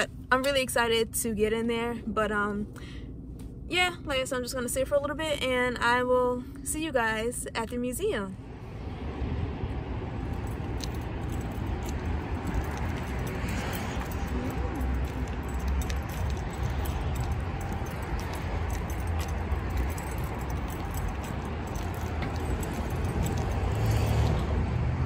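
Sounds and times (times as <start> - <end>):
steady low rumble: 0.0 - 25.0
light jingling clicks: 10.3 - 24.4.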